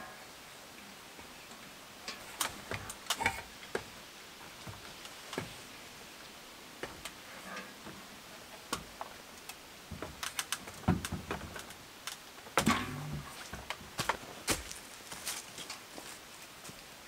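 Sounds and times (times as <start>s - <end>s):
hands handling things clicking: 8.7s - 12.2s.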